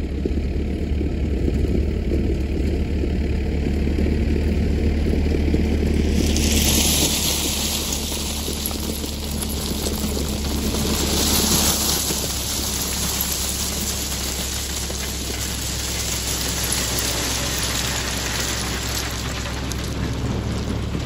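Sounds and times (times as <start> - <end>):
machine engine running: 0.0 - 21.0
gravel pouring from loader bucket: 5.1 - 21.0.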